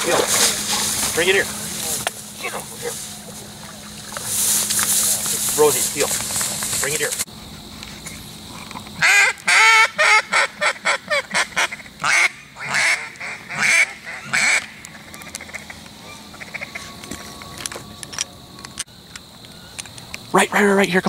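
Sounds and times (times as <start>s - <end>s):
duck quacking: 9.0s - 17.0s.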